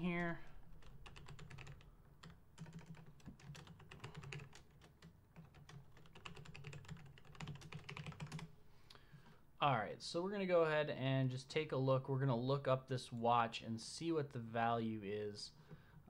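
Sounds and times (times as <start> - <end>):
typing on computer keyboard: 0.8 - 8.5.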